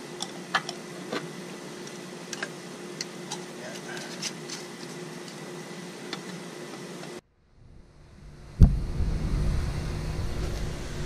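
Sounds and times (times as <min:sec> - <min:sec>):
low even hum: 0:00.0 - 0:11.0
low rumble: 0:07.3 - 0:11.0.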